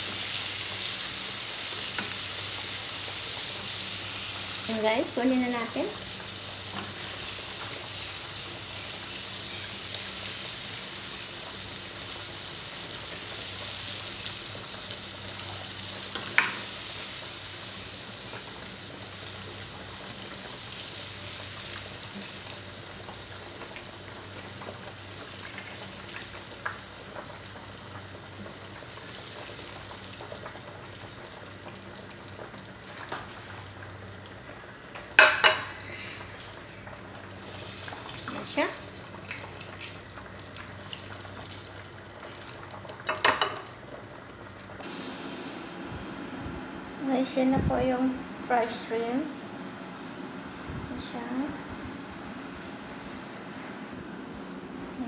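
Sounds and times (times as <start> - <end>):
shrimp sizzling in hot oil: 0.0 - 34.4, 35.1 - 44.4.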